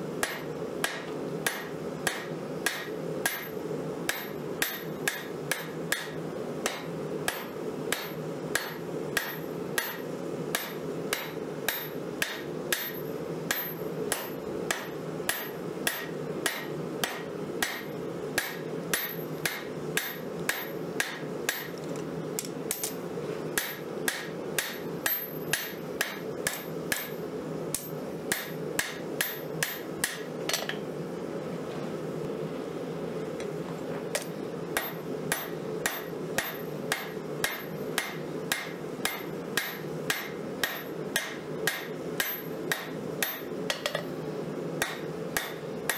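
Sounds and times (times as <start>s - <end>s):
hammer striking blade on anvil: 0.2s - 3.5s, 4.1s - 10.0s, 23.6s - 27.2s, 34.2s - 44.1s.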